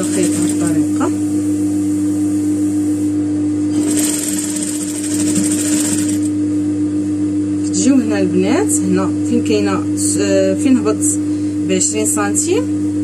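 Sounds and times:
sewing machine stitching: 0.0s - 0.8s, 3.7s - 6.3s.

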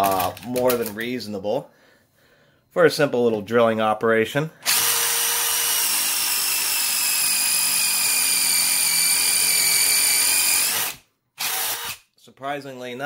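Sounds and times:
impact driver drilling into steel: 4.6s - 12.0s.

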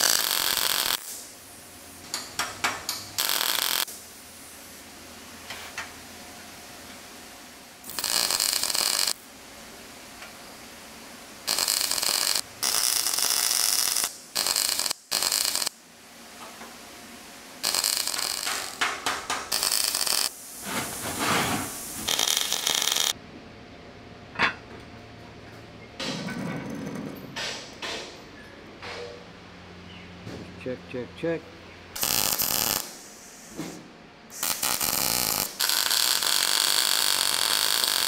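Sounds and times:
welding hissing bursts: 0.0s - 1.5s, 2.9s - 4.8s, 7.8s - 9.2s, 11.4s - 15.8s, 17.6s - 23.2s, 32.0s - 38.0s.

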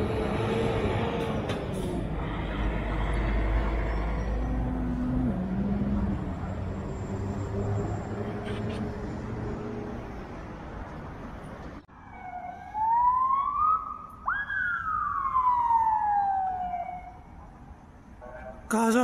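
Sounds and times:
street traffic hum: 0.0s - 19.0s
emergency vehicle siren wailing: 11.8s - 17.7s.

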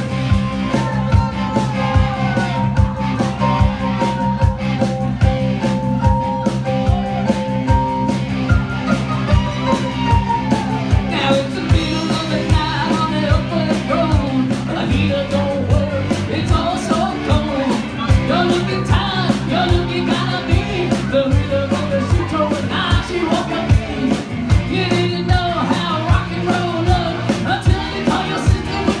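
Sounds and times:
live rock band: 0.0s - 29.0s
man singing into a microphone: 9.5s - 29.0s.

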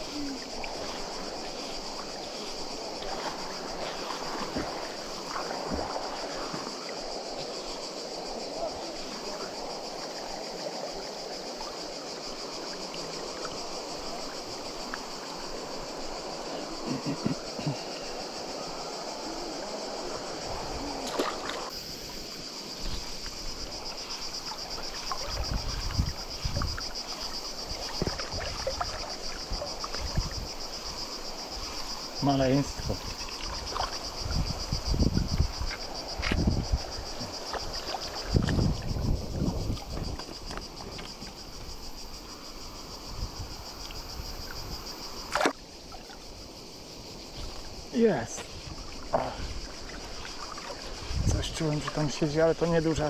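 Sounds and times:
river rushing: 0.0s - 34.8s
insects chirring: 0.0s - 53.0s.

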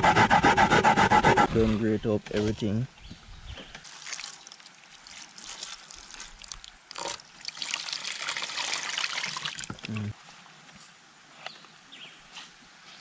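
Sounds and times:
wet squelching of kneaded coconut: 3.8s - 9.6s.

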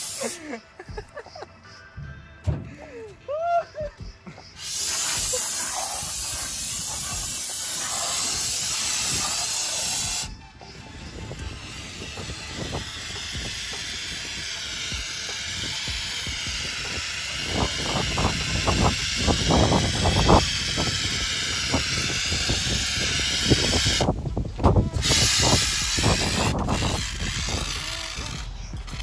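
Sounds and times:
aerosol spray foam hissing: 0.0s - 0.6s, 4.6s - 10.4s, 25.0s - 27.0s.

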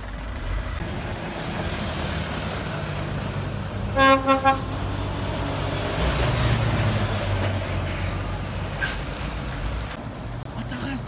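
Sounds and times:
truck diesel engine passing: 0.0s - 10.8s
truck horn blasts: 3.9s - 4.9s.

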